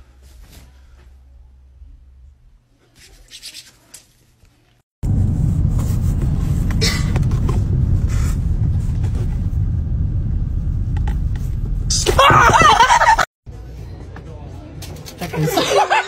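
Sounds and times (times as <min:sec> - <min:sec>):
car cabin road rumble: 0:05.0 - 0:13.3.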